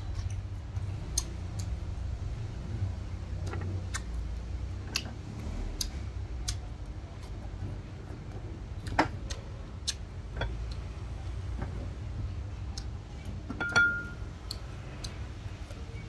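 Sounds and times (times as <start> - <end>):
steady low hum: 0.0 - 16.0
ringing clinks: 13.6 - 14.2.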